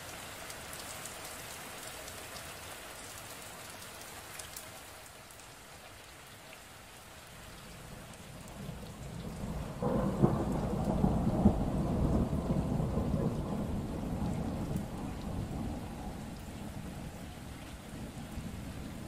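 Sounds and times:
steady rain: 0:00.0 - 0:19.0
thunder rumbling: 0:08.2 - 0:19.0.

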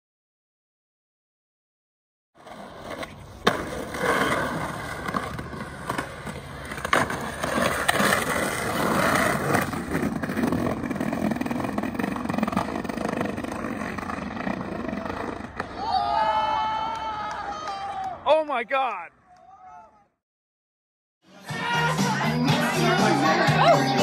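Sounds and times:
skateboard rolling on asphalt: 0:02.4 - 0:17.2, 0:21.4 - 0:24.0.

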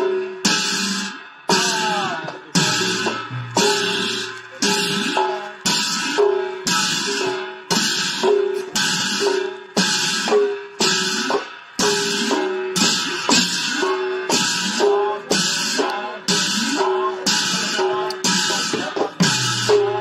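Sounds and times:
drum playing steady beat: 0:00.0 - 0:20.0
hand cymbals clashing: 0:00.0 - 0:20.0.

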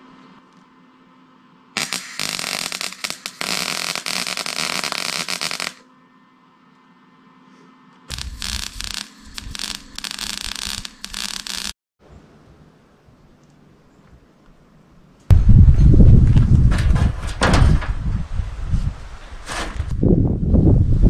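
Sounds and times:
welding arc crackling: 0:01.8 - 0:05.8, 0:08.1 - 0:11.8.

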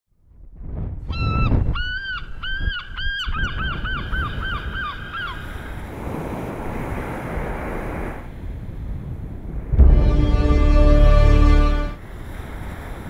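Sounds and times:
gull calling: 0:01.2 - 0:05.6
surf breaking on beach: 0:09.6 - 0:13.0.

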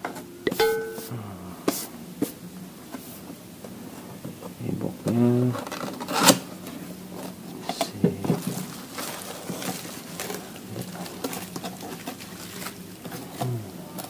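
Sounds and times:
cardboard and bubble-wrap rustling: 0:03.0 - 0:14.0.

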